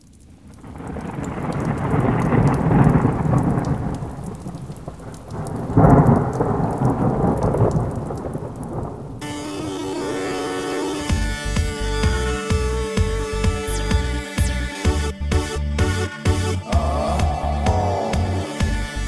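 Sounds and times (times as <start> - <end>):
thunder rumbling: 0.0 - 10.4
steady rain: 0.0 - 15.0, 15.8 - 19.0
sharp thunderclap: 0.3 - 9.2
music: 9.2 - 19.0.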